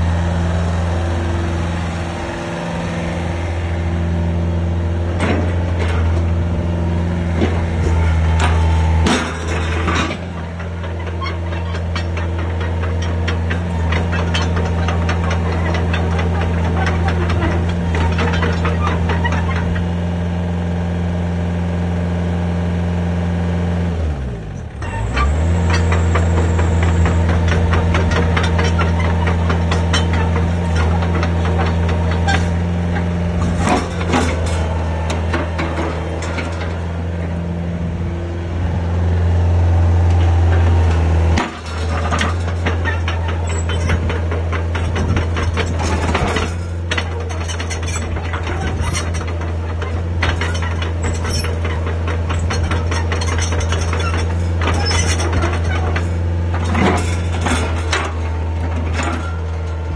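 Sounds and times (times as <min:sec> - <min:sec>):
excavator diesel engine running: 0:00.0 - 0:59.9
metal track links clanking: 0:07.4 - 0:19.8, 0:24.8 - 0:37.5, 0:40.0 - 0:59.9.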